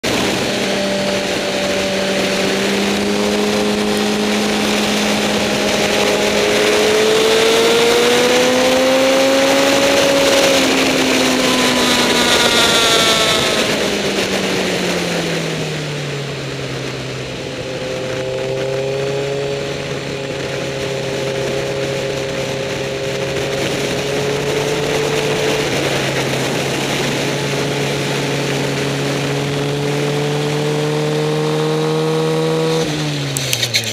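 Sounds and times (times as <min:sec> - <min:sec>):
wind rushing: 0:00.0 - 0:15.6
motorcycle engine revving: 0:00.0 - 0:33.9.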